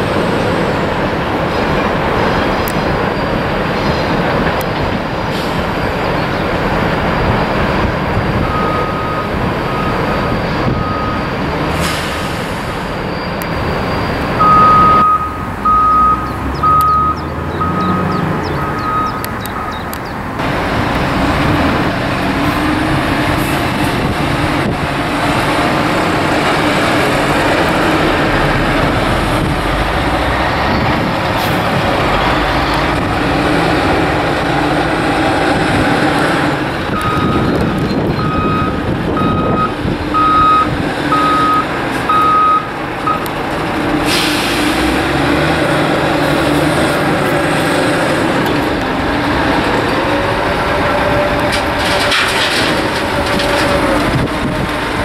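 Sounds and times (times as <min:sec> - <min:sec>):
heavy diesel engines running: 0:00.0 - 0:55.0
reversing alarm beeps: 0:08.4 - 0:11.4, 0:13.1 - 0:19.9, 0:37.0 - 0:43.3.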